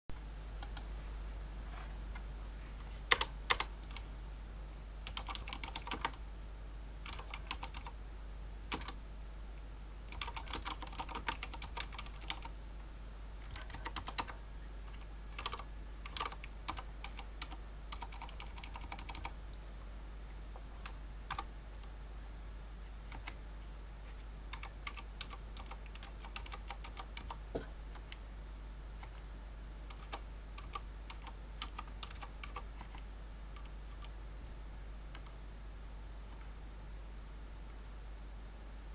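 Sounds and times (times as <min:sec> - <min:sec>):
typing on mechanical keyboard: 0:03.1 - 0:04.0, 0:05.0 - 0:06.2, 0:07.0 - 0:08.0, 0:08.7 - 0:09.0, 0:10.1 - 0:12.5, 0:13.5 - 0:19.3, 0:20.8 - 0:21.5, 0:24.5 - 0:27.4, 0:29.9 - 0:33.0.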